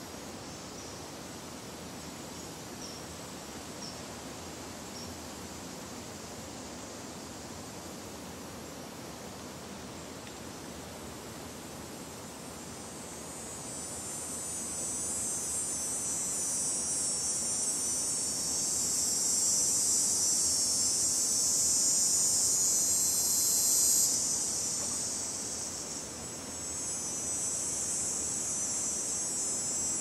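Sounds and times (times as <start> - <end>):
insects chirring: 0.0 - 30.0
low outdoor hiss: 0.0 - 30.0.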